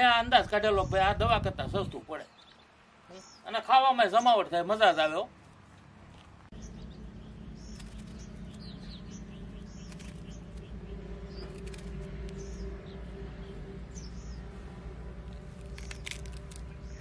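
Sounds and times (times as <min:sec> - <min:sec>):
small birds chirping: 0:01.8 - 0:05.5, 0:06.1 - 0:17.0
steady low rumble: 0:06.5 - 0:17.0.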